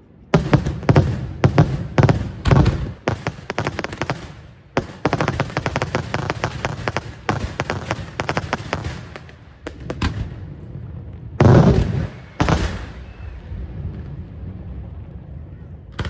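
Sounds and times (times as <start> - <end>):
heavy firework booms: 0.3 - 15.4
firework cracks: 0.4 - 10.4, 11.4 - 13.4.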